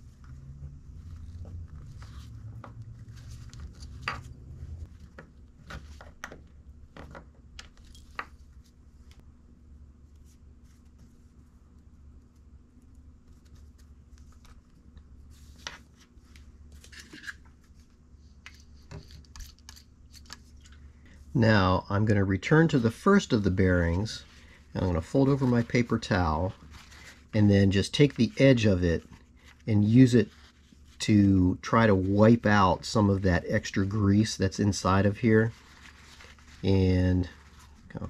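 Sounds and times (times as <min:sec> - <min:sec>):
low steady hum: 0:00.0 - 0:38.0.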